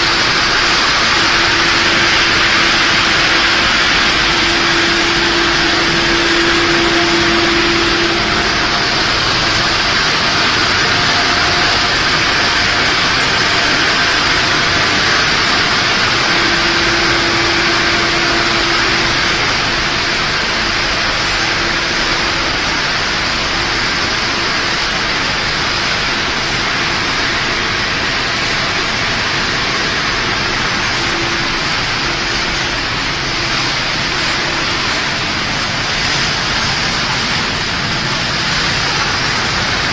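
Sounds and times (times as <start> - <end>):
faint humming tone: 0.0 - 23.2
production line machinery: 0.0 - 39.9.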